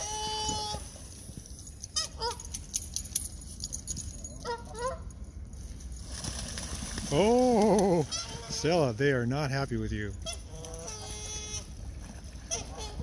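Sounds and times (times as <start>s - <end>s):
geese honking: 0.0s - 0.9s, 7.8s - 8.9s, 10.2s - 11.7s, 12.4s - 13.0s
wings flapping on water: 5.9s - 8.9s.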